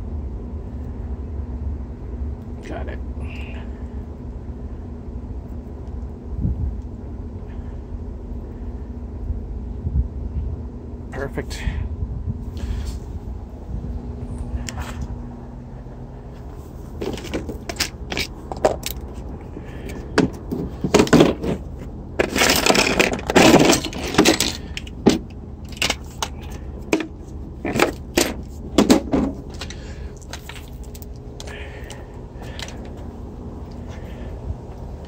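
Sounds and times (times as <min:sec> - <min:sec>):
tools rattling and scraping: 0:16.4 - 0:33.1.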